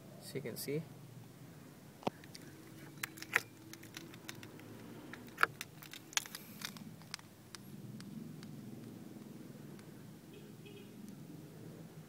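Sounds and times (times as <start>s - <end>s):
camera handling clicks and taps: 2.0s - 7.6s.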